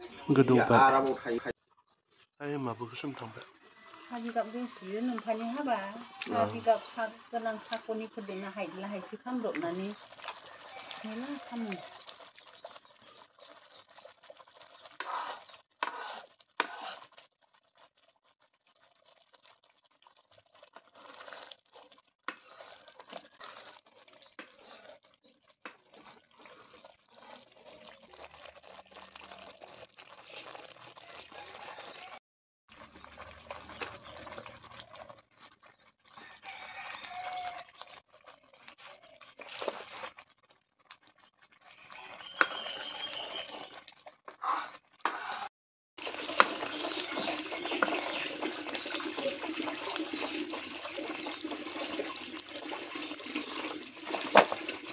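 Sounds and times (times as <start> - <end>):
boiling ghee popping and sputtering: 0.0 - 54.9
steel ladle scraping pan: 14.8 - 17.3, 21.0 - 25.1, 42.2 - 51.4, 53.0 - 54.9.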